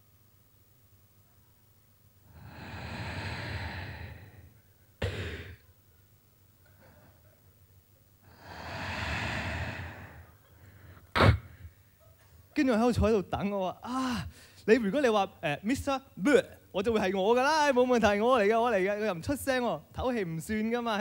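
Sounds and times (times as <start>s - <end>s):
man breathing into microphone: 2.3s - 5.6s, 8.3s - 11.8s.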